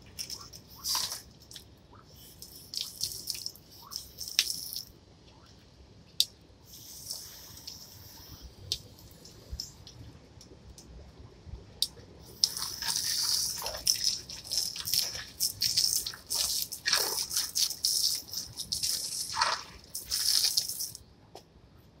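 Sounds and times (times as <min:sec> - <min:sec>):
hose spray splashing: 0:00.0 - 0:01.3, 0:02.2 - 0:04.9, 0:06.7 - 0:09.7, 0:12.2 - 0:21.0.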